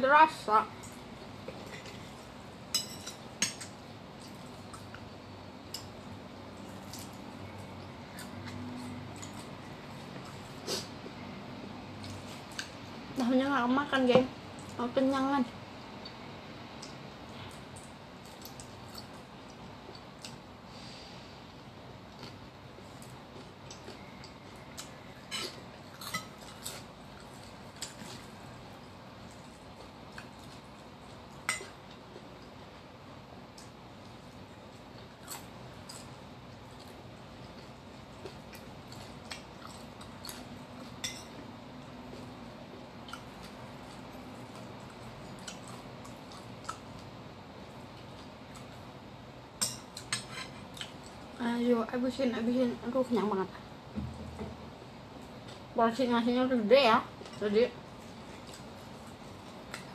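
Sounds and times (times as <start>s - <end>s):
steady low hum: 0.0s - 59.9s
person chewing: 22.1s - 28.4s, 43.0s - 47.2s.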